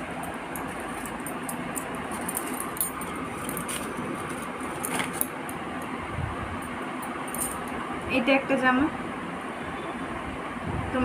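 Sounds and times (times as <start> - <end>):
shopping bag rustling: 0.6 - 5.4.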